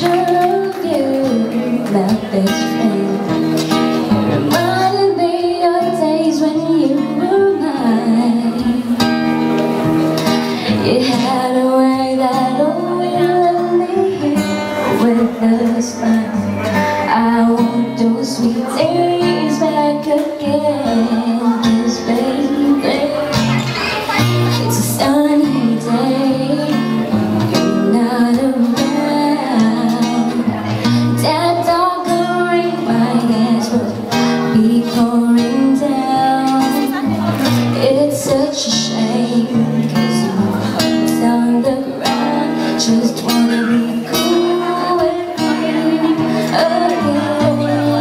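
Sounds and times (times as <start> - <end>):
woman singing pop ballad: 0.0 - 9.4, 10.2 - 23.4, 24.5 - 48.0
acoustic guitar strumming: 0.0 - 48.0.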